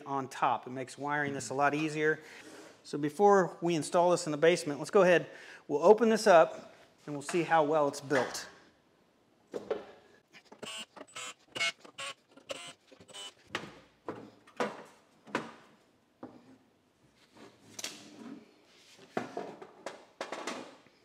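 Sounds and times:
cordless drill bursts: 10.6 - 13.4.

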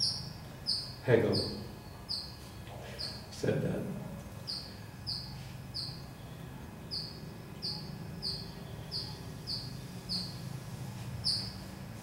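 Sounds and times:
small bird chirping: 0.0 - 3.4, 4.4 - 11.9
faint low room hum: 0.0 - 12.0.

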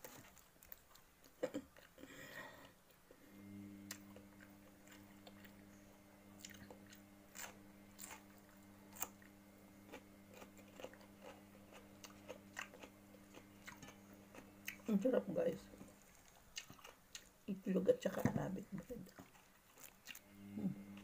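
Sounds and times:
steady low hum: 0.0 - 21.0
biting and chewing cucumber: 6.4 - 14.9, 15.9 - 17.4, 19.0 - 20.2.

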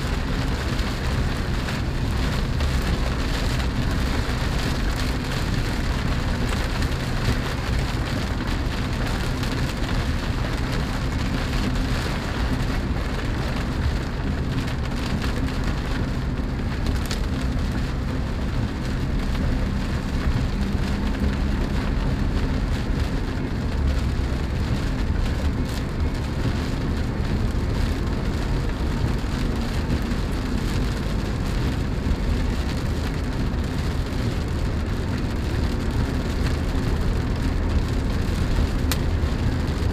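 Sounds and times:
rain pattering on car roof: 0.0 - 39.9
road and engine hum: 0.0 - 39.9.

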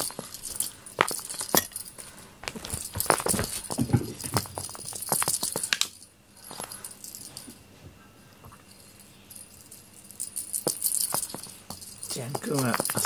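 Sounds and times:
toy jingling and rattling: 0.0 - 7.5, 8.7 - 13.0.

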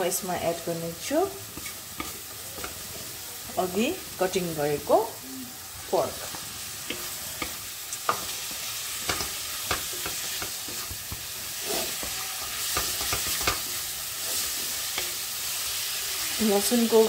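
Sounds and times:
meat sizzling in a pan: 0.0 - 17.0
spatula scraping a pan: 6.1 - 16.3.

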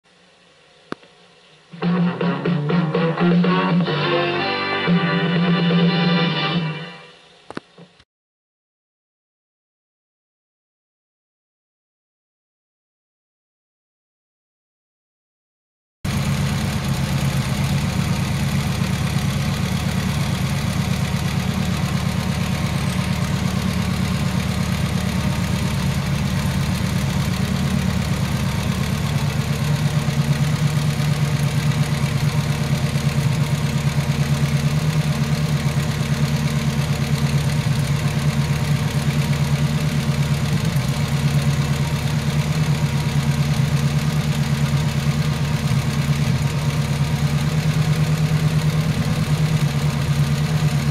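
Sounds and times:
helicopter piston engine idling: 16.1 - 50.9.

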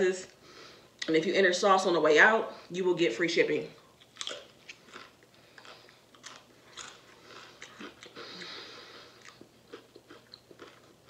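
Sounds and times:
potato chip crunching: 4.0 - 11.0.

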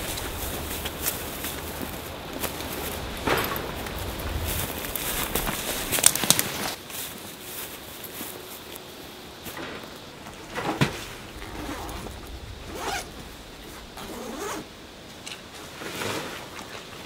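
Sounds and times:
zipper being pulled open: 11.4 - 12.1, 12.7 - 13.1, 14.0 - 14.6.

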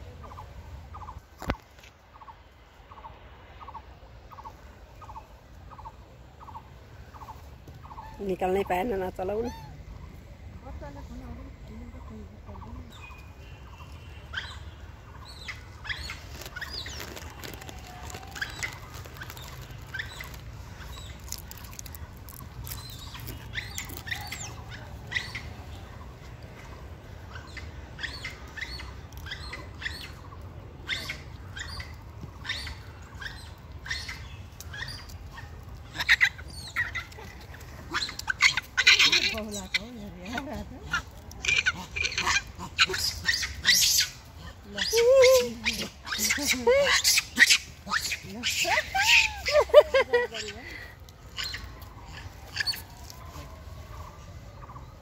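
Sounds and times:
birds chirping: 0.1 - 53.2
rustles and clicks: 16.0 - 24.6.

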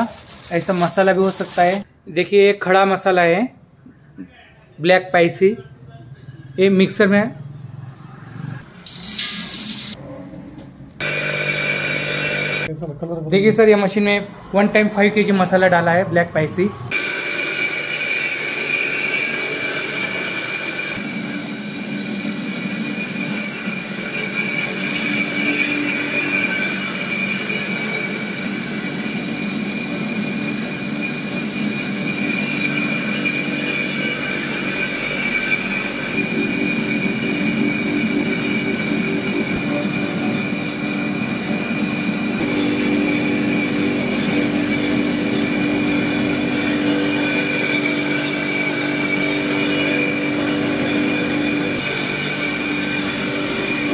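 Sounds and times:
mixer grinder whining: 0.0 - 1.9, 11.0 - 12.7, 16.5 - 53.9
spice churning in grinder: 0.0 - 1.9, 11.0 - 12.7, 16.9 - 53.9.

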